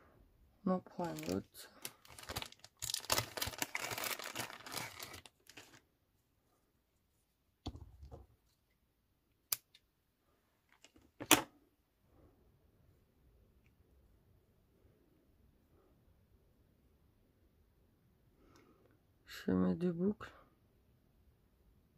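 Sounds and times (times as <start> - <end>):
craft materials rustling: 0.9 - 5.8.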